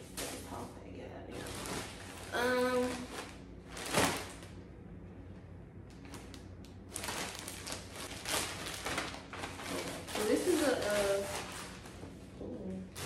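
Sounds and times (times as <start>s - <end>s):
plastic bags rustling: 1.3s - 4.6s, 6.0s - 12.2s.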